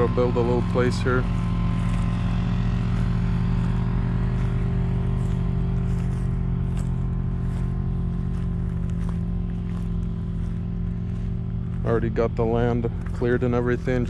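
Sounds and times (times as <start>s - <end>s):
engine running steadily: 0.0s - 14.0s.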